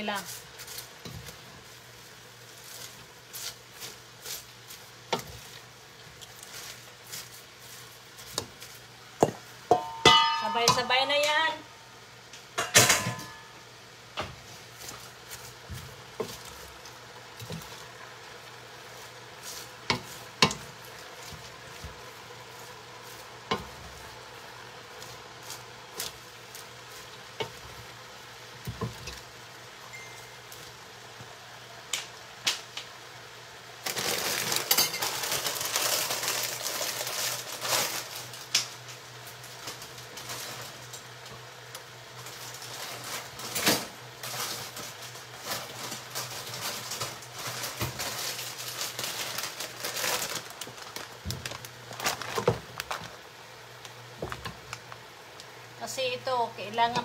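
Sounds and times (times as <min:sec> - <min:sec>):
wooden spatula scraping and knocking: 0:00.0 - 0:01.8, 0:02.4 - 0:10.9, 0:14.2 - 0:29.3
vegetables sizzling in a pot: 0:00.0 - 0:57.0.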